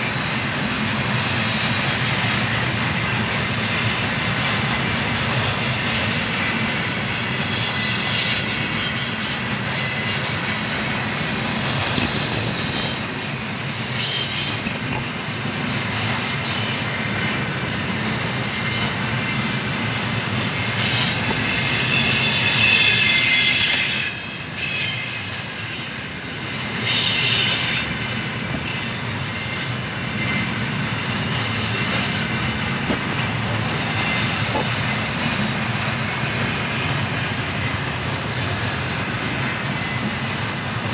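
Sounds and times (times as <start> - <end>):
freight train wheels rumbling: 0.0 - 40.9
wheel screech: 6.1 - 37.8.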